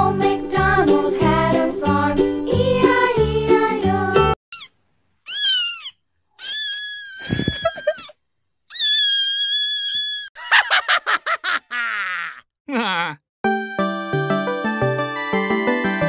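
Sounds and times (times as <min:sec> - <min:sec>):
cat meowing: 0:05.3 - 0:08.0.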